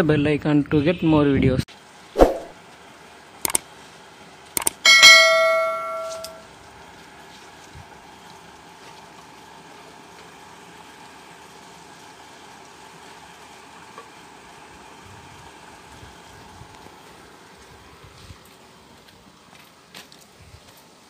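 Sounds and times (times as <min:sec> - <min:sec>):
bright bell chime: 0:04.9 - 0:06.4.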